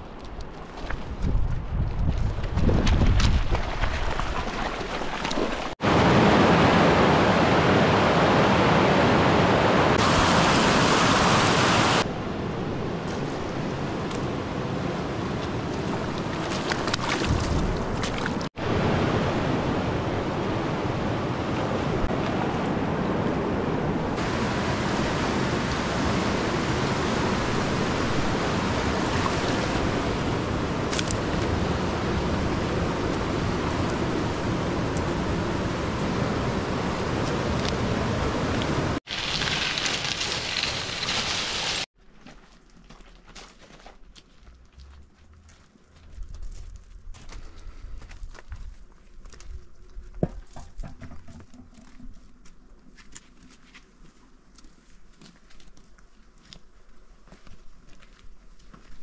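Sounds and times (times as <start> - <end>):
rushing river water: 3.7 - 12.4, 13.8 - 41.9.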